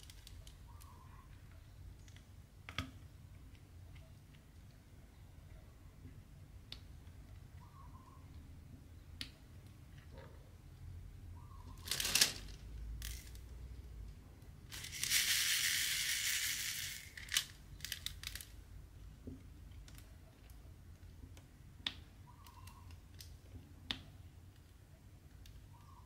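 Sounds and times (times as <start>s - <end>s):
crunchy rattle: 14.7s - 18.5s.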